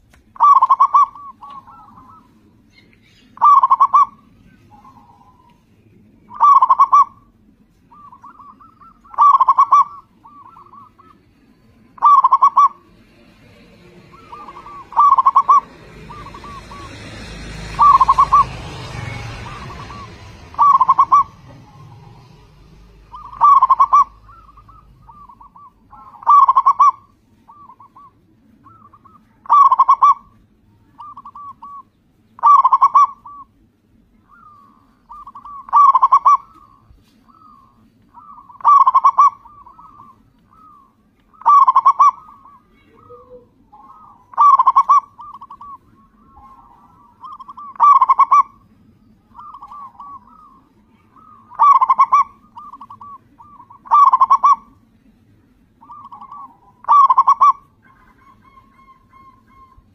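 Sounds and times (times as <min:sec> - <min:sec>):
dove cooing: 0:00.0 - 0:55.0, 0:55.7 - 0:59.9
rushing noise: 0:12.0 - 0:27.2.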